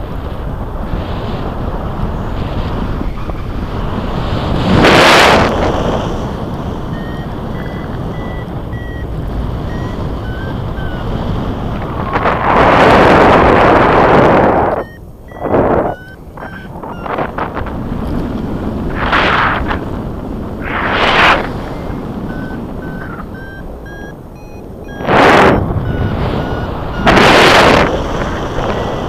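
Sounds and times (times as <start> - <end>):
wind rushing over microphone: 0.0 - 29.0
faint short beeps: 6.8 - 11.4, 14.1 - 17.6, 21.3 - 29.0.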